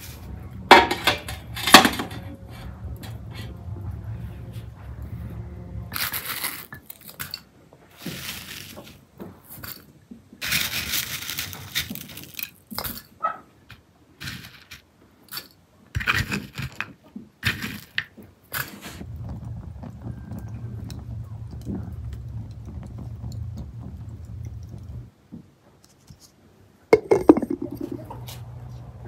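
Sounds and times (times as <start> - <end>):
scraping or rustling: 0.0 - 25.1
dishes and utensils clinking: 0.7 - 3.2, 27.0 - 28.3.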